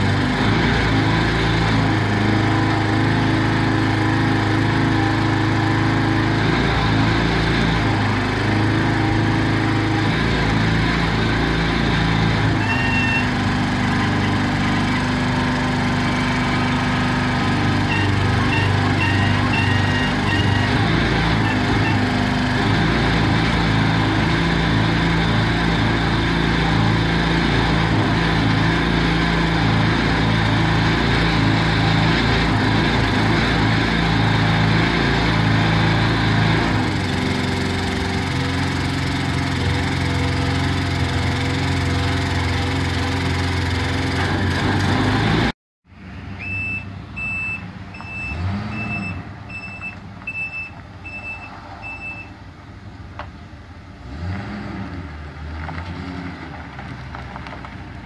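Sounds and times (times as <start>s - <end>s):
gas engine running: 0.0s - 50.3s
backup alarm beeping: 46.4s - 52.3s.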